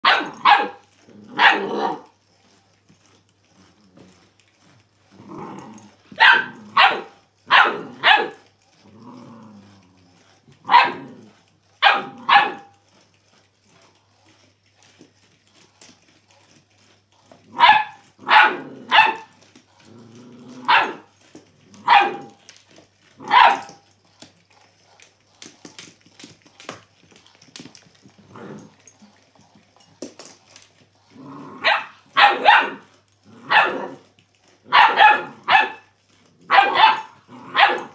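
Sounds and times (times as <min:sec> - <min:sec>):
puppy barking: 0:00.0 - 0:02.1, 0:06.2 - 0:08.4, 0:10.6 - 0:11.2, 0:11.8 - 0:12.8, 0:17.5 - 0:19.4, 0:20.6 - 0:21.1, 0:21.8 - 0:22.4, 0:23.2 - 0:23.9, 0:31.6 - 0:34.0, 0:34.6 - 0:37.9
puppy growling: 0:00.0 - 0:37.9.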